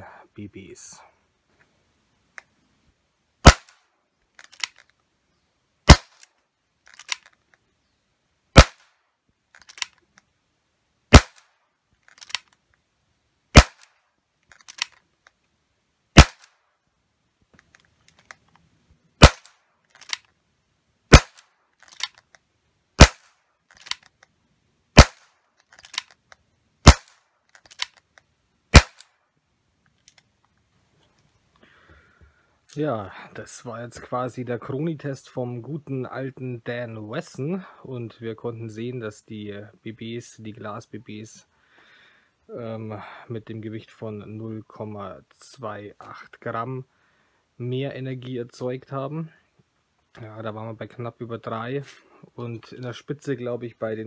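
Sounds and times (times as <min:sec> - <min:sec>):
airsoft revolver shots: 0:03.4 - 0:03.8, 0:05.9 - 0:06.3, 0:08.6 - 0:08.9, 0:11.1 - 0:11.5, 0:13.5 - 0:14.0, 0:16.2 - 0:16.6, 0:19.2 - 0:19.6, 0:21.1 - 0:21.5, 0:23.0 - 0:23.4, 0:25.0 - 0:25.3, 0:26.8 - 0:27.2, 0:28.7 - 0:29.1.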